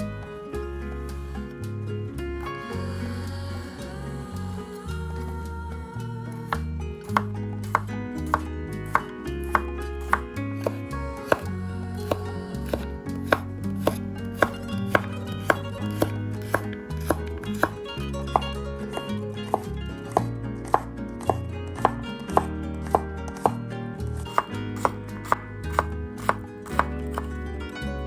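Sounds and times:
knife chopping on wooden board: 0:07.2 - 0:11.5, 0:12.1 - 0:23.6, 0:24.2 - 0:27.3.

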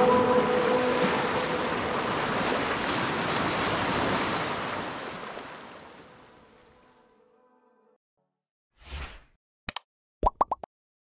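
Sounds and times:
surf washing over sand and rocks: 0:00.0 - 0:06.3.

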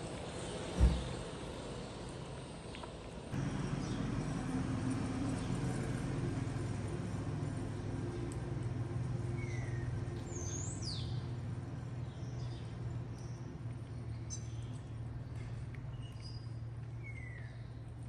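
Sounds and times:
low outdoor hum: 0:00.0 - 0:18.0
bird chirps: 0:09.4 - 0:11.2, 0:12.1 - 0:17.8.

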